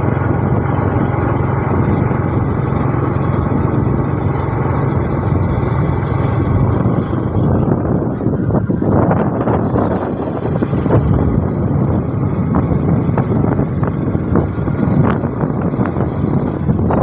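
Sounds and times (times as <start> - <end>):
motorcycle engine and road noise: 0.0 - 17.0
wind rushing over microphone: 0.0 - 17.0.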